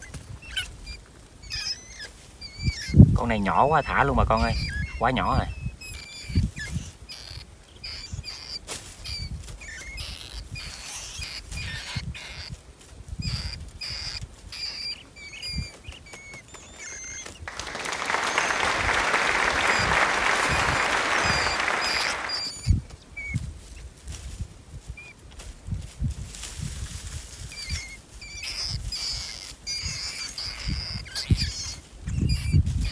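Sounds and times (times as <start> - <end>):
rat squeaks: 0.0 - 17.5, 21.2 - 25.2, 26.7 - 32.9.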